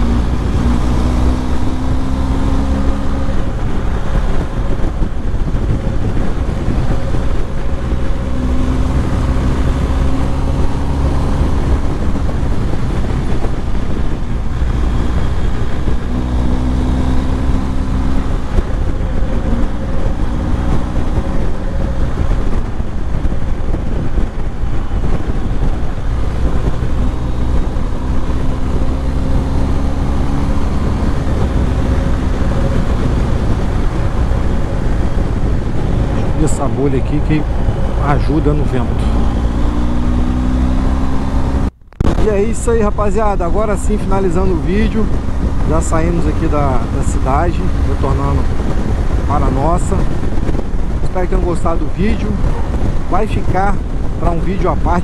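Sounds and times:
motorcycle engine at speed: 0.0 - 55.0
wind rush: 0.0 - 55.0.

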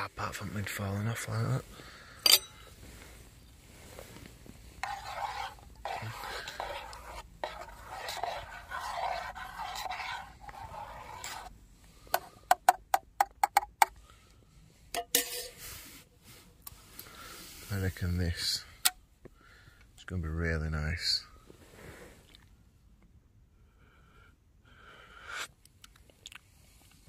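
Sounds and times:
spoon clinking on metal mug: 2.2 - 2.6
spoon scraping inside metal mug: 2.2 - 2.6, 4.8 - 11.5, 15.0 - 15.6.

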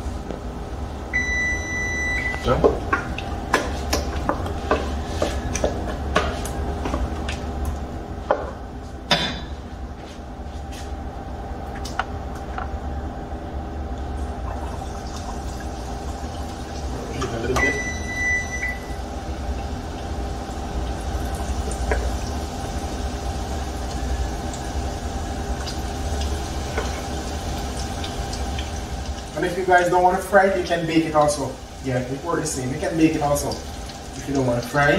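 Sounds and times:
steady hum: 0.0 - 34.9
food sizzling in hot oil: 14.5 - 34.9
short high beep: 17.6 - 19.0.

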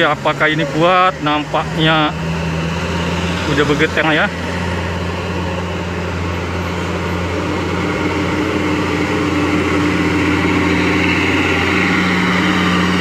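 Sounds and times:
truck diesel engine labouring: 0.0 - 13.0.

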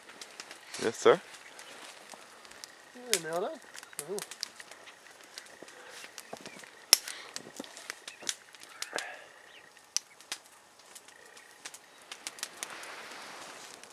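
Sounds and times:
wood fire crackling: 0.0 - 13.9
faint bird call: 1.3 - 10.2.

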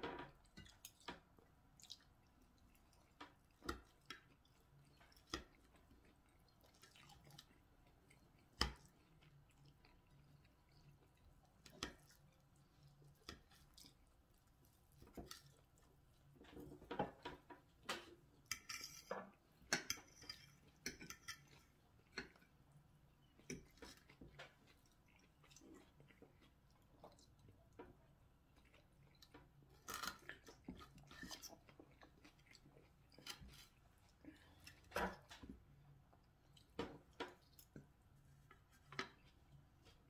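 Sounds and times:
person chewing: 1.8 - 16.4, 23.1 - 27.8, 28.5 - 40.0.

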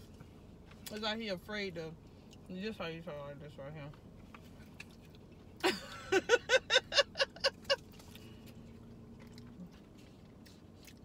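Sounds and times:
person laughing: 5.6 - 7.8.

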